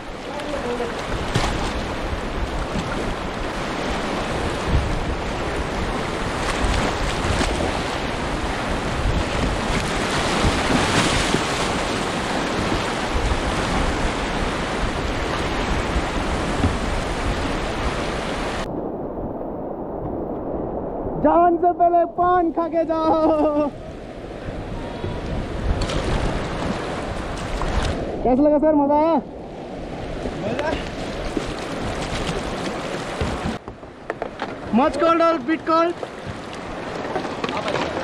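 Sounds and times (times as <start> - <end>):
river rushing: 0.0 - 18.7
wind buffeting microphone: 0.0 - 28.6, 29.3 - 34.8.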